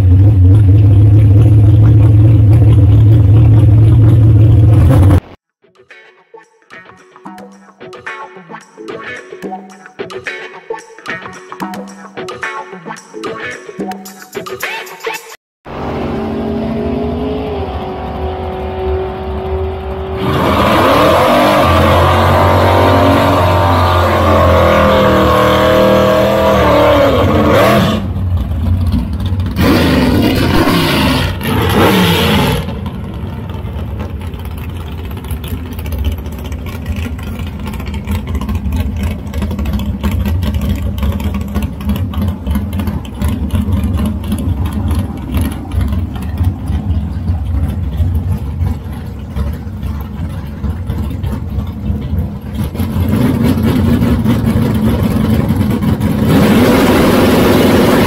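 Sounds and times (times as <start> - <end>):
car engine rumbling idle: 0.0 - 5.2, 27.2 - 31.6, 32.6 - 56.3
race car engines at full throttle: 0.0 - 5.4, 15.6 - 58.0.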